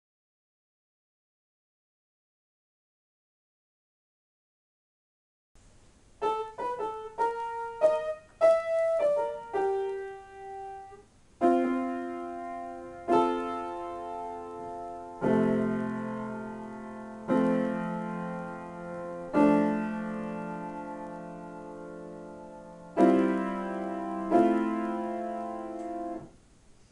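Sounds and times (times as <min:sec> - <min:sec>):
grand piano playing: 0:06.2 - 0:26.3.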